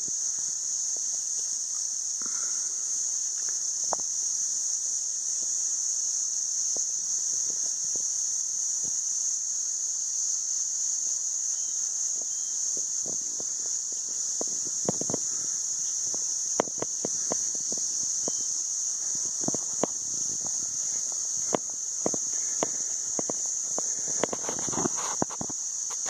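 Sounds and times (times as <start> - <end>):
insect chorus drone: 0.0 - 26.0
faint ticks and taps: 3.4 - 4.1, 12.2 - 26.0.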